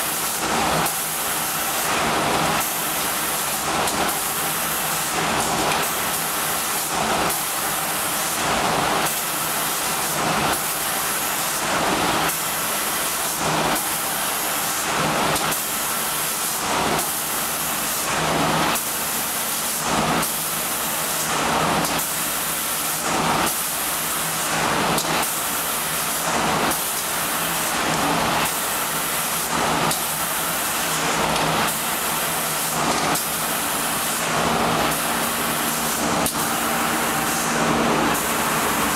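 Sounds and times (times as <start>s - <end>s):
hiss of spraying paint: 0.0s - 38.9s
machine hum: 32.8s - 38.9s.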